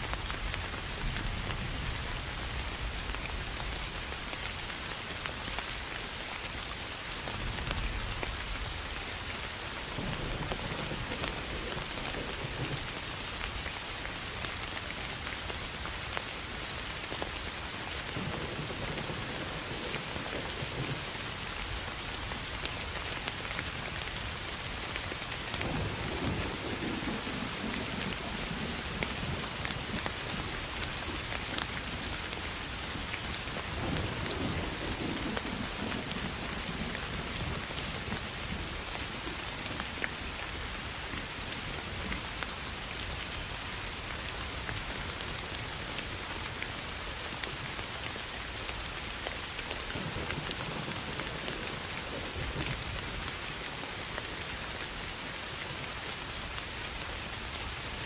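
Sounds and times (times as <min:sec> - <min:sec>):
rain falling on grass: 0:00.0 - 0:58.0.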